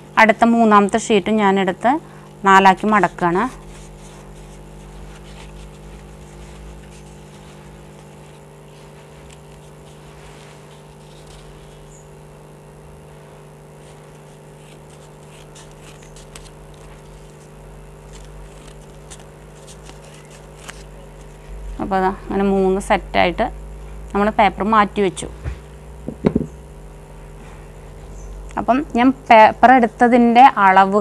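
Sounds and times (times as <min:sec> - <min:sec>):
low hum: 0:00.0 - 0:31.0
paper rustling: 0:02.8 - 0:12.0, 0:13.8 - 0:21.6
scissors snipping paper: 0:14.0 - 0:17.5.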